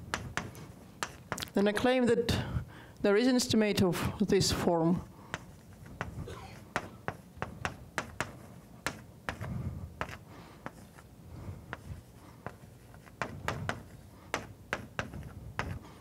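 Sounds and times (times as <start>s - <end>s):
chalk tapping and scratching on blackboard: 0.0s - 1.5s, 5.3s - 15.9s.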